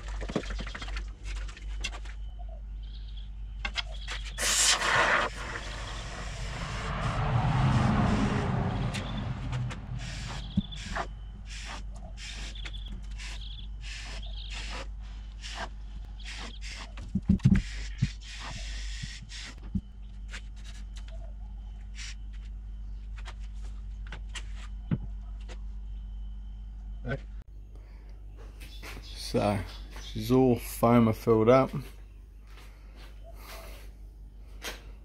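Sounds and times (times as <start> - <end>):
steady low hum: 0.8 - 35.0
foam spray can hissing: 4.4 - 5.8.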